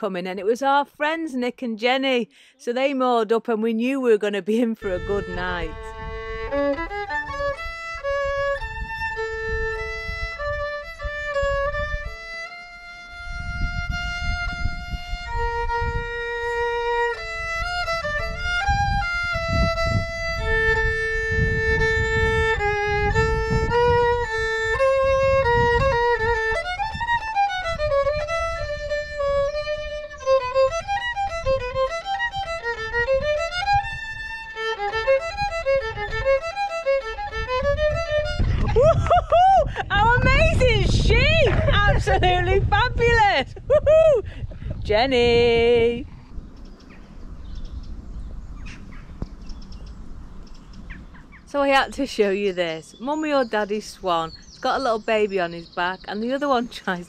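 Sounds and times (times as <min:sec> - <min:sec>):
solo violin: 0:04.8 - 0:46.2.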